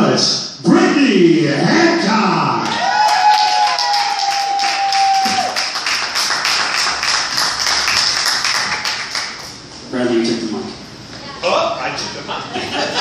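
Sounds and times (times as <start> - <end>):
person whooping: 2.6 - 5.7
audience applauding: 2.6 - 9.6.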